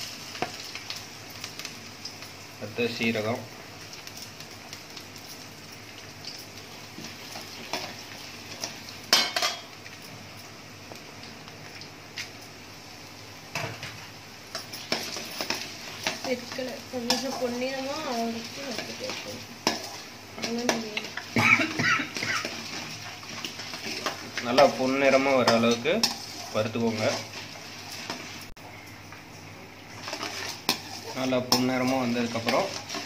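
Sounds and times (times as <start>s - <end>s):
lentils sizzling in hot oil: 0.0s - 33.0s
ladle scraping pan: 30.0s - 33.0s.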